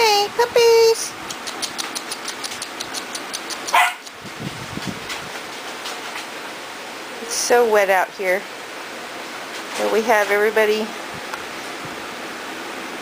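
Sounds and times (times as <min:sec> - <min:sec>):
puppy yipping: 0:01.6 - 0:04.1.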